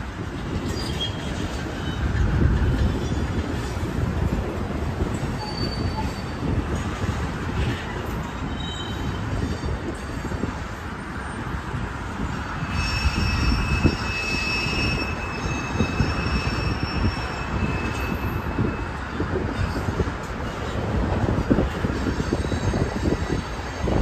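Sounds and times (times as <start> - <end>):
train wheels rumbling and clacking: 0.0 - 24.0
high wheel squeal: 5.2 - 7.2, 8.3 - 10.6, 12.6 - 20.8, 21.9 - 24.0.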